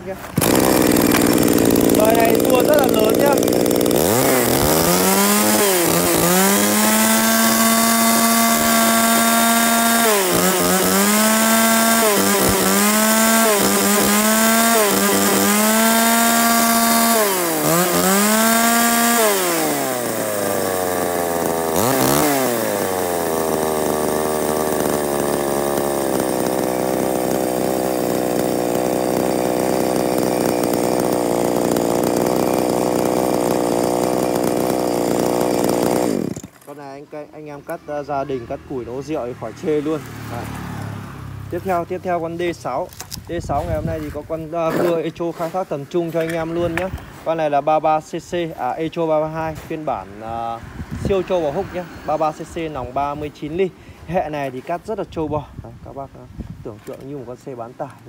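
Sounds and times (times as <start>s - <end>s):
chainsaw engine revving and idling: 0.0s - 55.2s, 56.8s - 58.0s.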